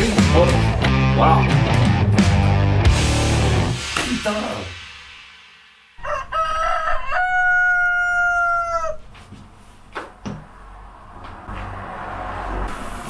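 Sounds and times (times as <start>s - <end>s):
rooster crowing: 6.0s - 9.1s.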